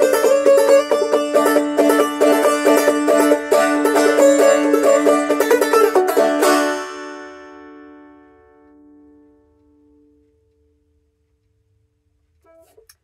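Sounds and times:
banjo plucked notes: 0.0 - 9.3
banjo chord ringing: 0.0 - 9.5.

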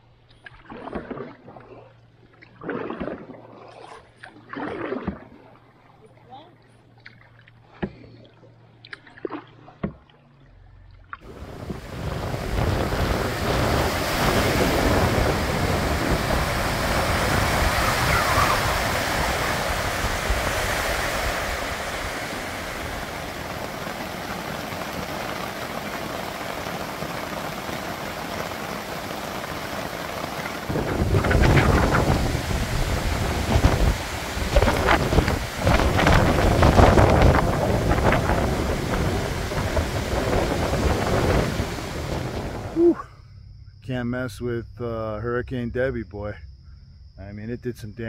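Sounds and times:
lake waves: 0.0 - 43.1
wind: 0.0 - 48.0
wind buffeting microphone: 11.2 - 28.0, 29.5 - 42.9.

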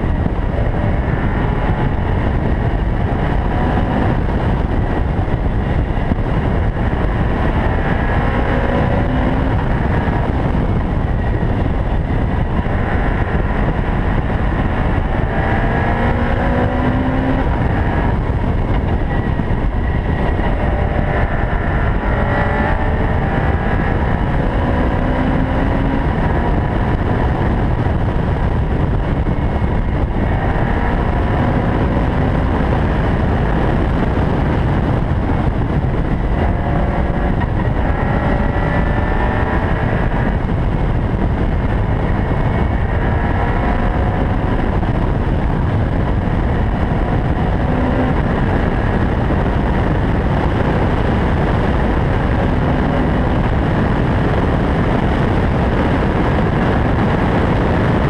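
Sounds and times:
sports car engine accelerating: 0.0 - 58.0
steady rush of noise: 0.0 - 58.0.

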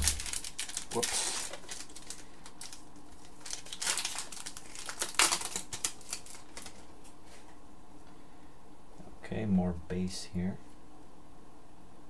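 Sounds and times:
card pack wrapper crinkling: 0.0 - 7.2.

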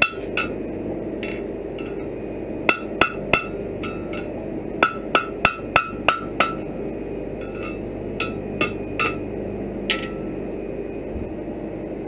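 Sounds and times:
hammer striking iron on anvil: 0.0 - 0.6, 1.2 - 6.8, 7.4 - 10.5.

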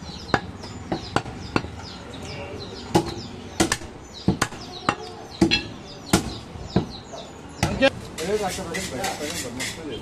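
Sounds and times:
cleaver chopping meat on wood: 3.0 - 7.0.

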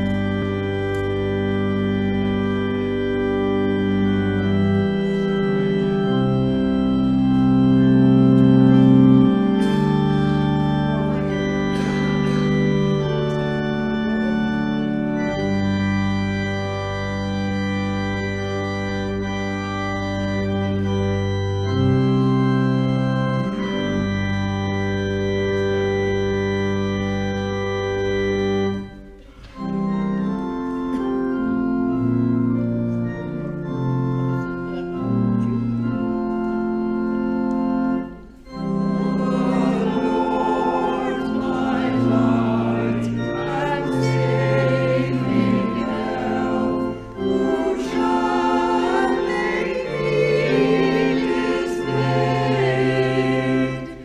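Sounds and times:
church organ playing chords: 0.0 - 54.0
voices singing: 39.0 - 54.0.

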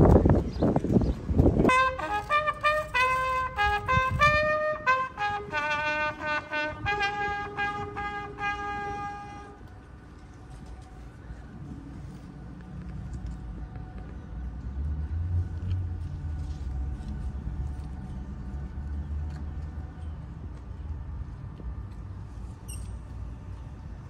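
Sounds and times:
brass horn playing solemn call: 1.6 - 9.9.

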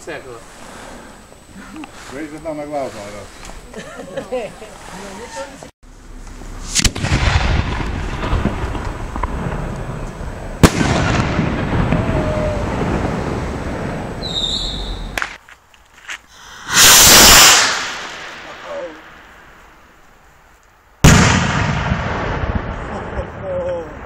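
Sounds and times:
rocket rushing hiss: 0.0 - 3.6, 6.5 - 15.3, 16.3 - 19.9
firework launch crack: 6.3 - 15.4, 16.3 - 19.9, 21.0 - 24.0
firework bang and rumble: 6.6 - 15.4, 16.4 - 19.4, 21.0 - 24.0.

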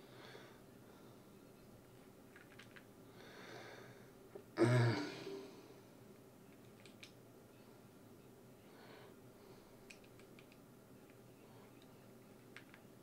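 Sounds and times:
man sighing: 4.6 - 5.6
faint clicks: 6.5 - 7.2, 9.8 - 12.9.

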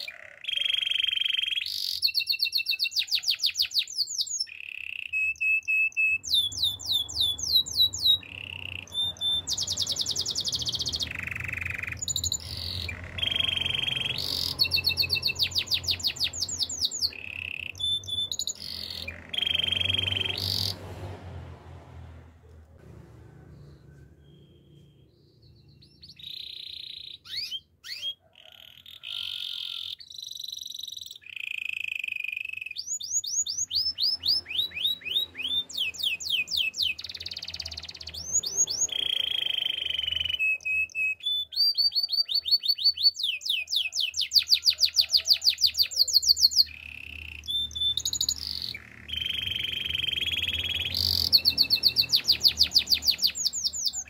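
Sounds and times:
canary singing: 0.0 - 21.2, 23.5 - 54.0.

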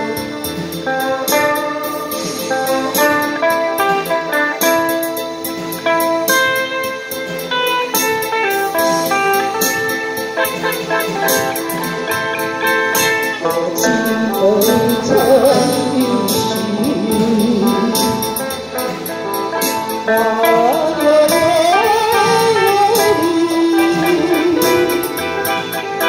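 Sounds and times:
electric guitar accompaniment: 0.0 - 26.0
harmonica melody with vibrato: 0.0 - 26.0.

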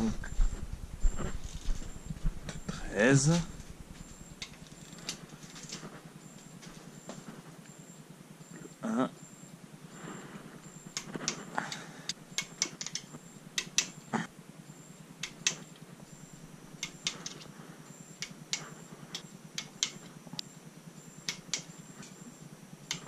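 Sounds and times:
torque wrench clicking: 12.4 - 13.9.

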